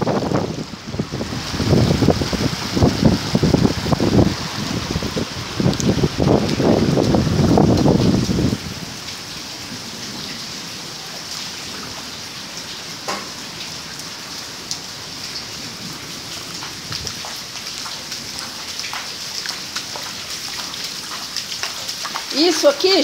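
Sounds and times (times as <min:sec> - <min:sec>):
rain falling: 0:00.0 - 0:23.0
raindrop ticks: 0:05.7 - 0:07.9, 0:16.5 - 0:23.0.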